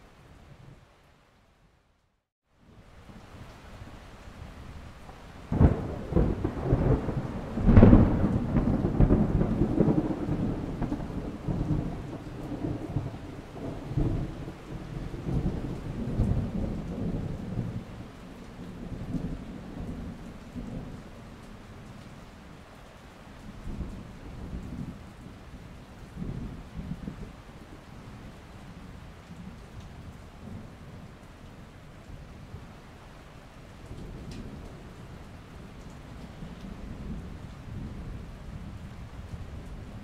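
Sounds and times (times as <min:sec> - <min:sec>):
steady rain: 0:00.0 - 0:40.0
thunder cracking and rumbling: 0:05.4 - 0:21.1.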